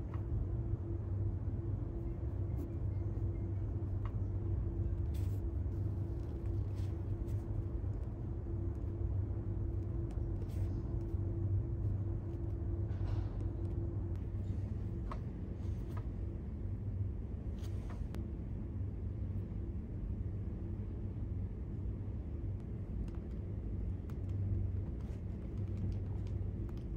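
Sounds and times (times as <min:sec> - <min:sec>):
low background hum: 0:00.0 - 0:26.9.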